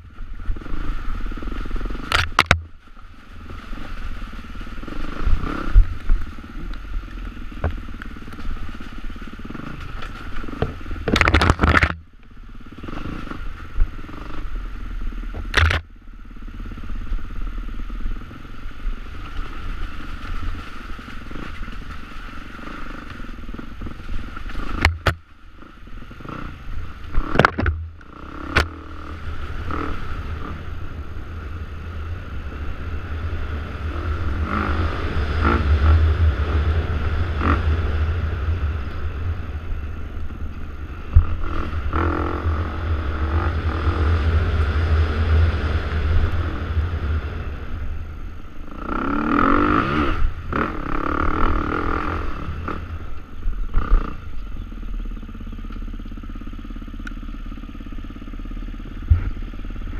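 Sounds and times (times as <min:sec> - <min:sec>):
dirt bike engine revving: 0:00.0 - 0:59.9
bike knocking on rough ground: 0:01.9 - 0:12.1, 0:19.2 - 0:26.3, 0:27.1 - 0:28.8, 0:59.0 - 0:59.9.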